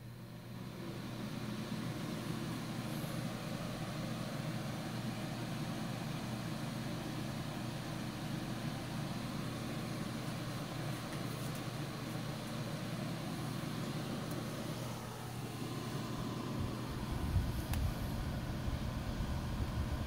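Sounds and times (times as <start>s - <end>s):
space heater fan running: 0.0s - 20.0s.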